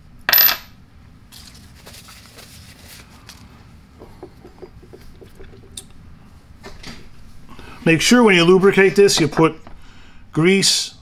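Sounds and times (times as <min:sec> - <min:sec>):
metal part clinking on wood: 0:00.3 - 0:00.7.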